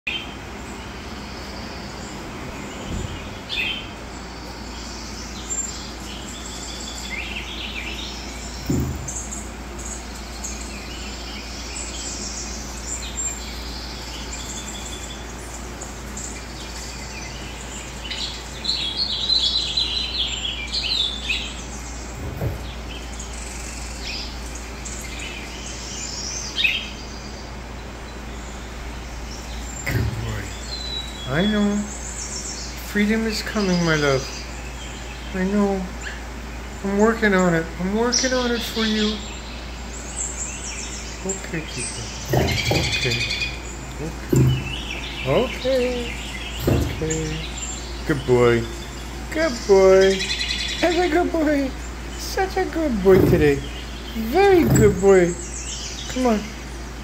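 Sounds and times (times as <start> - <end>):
birds chirping and trilling: 0.1 - 57.0
soft thumps: 8.6 - 9.5, 22.1 - 23.1, 42.2 - 45.0, 46.6 - 47.2, 53.1 - 55.2.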